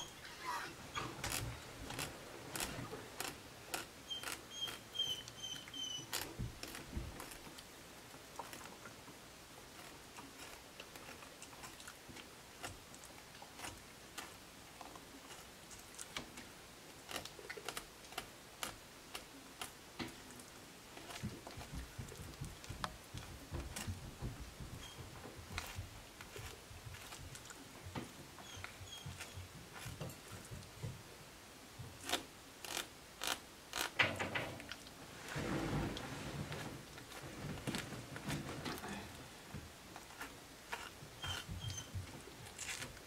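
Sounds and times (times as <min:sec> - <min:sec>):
short high squeaks: 0:00.0 - 0:01.5, 0:04.0 - 0:06.3, 0:41.2 - 0:42.0.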